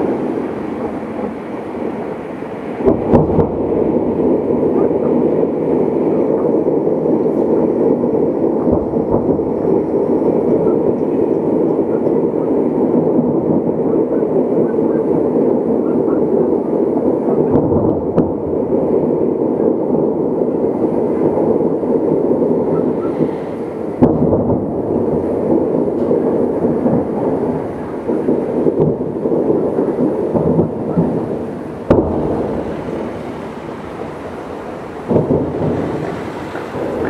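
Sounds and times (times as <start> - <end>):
loud sharp bangs: 0.0 - 6.4, 22.6 - 37.0
fireworks bursting: 0.0 - 37.0.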